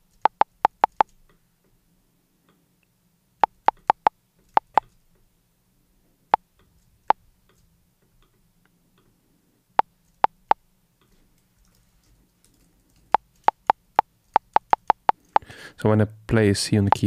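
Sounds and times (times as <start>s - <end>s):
short low metronome blips: 0.0s - 1.1s, 3.4s - 4.8s, 13.5s - 15.5s.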